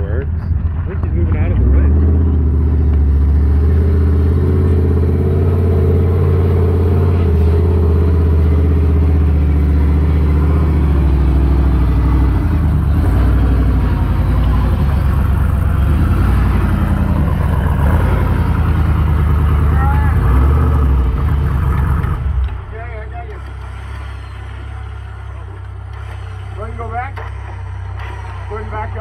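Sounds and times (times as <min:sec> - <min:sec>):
engine running: 0:00.0 - 0:29.0.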